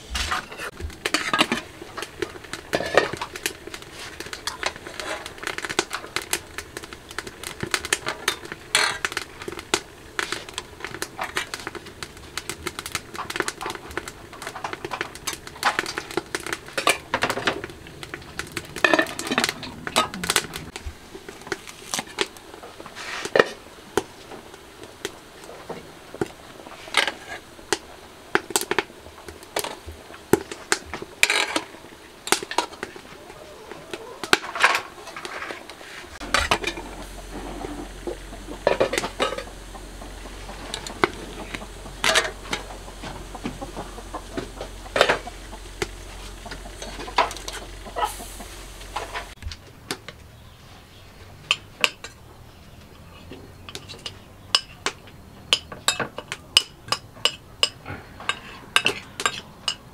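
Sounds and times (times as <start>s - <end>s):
low steady hum: 0.0s - 22.8s, 35.9s - 49.4s
utensils clinking on metal pots: 0.3s - 20.8s, 33.9s - 48.2s, 51.5s - 52.2s, 53.6s - 59.9s.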